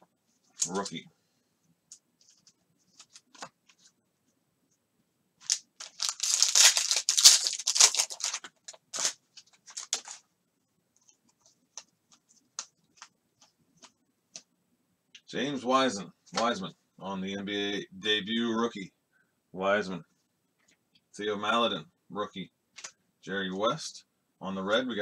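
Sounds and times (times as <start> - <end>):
foil wrapper tearing and crinkling: 5.4 - 10.2.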